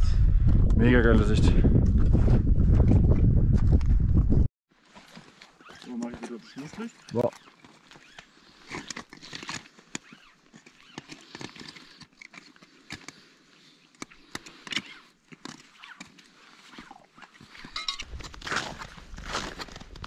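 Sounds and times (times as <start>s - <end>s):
low rumble: 0.0s - 4.5s
footsteps crunching on snow: 18.0s - 20.0s.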